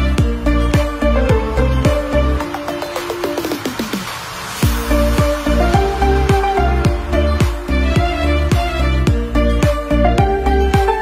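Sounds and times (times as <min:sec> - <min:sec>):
deep kick drum: 0:04.6 - 0:11.0
sustained melody of held notes: 0:04.7 - 0:11.0.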